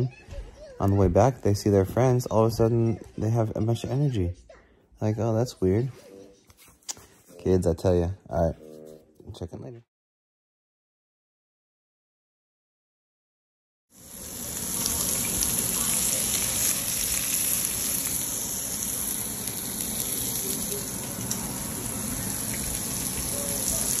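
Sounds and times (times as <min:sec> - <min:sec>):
food frying sizzle: 0:13.9 - 0:24.0.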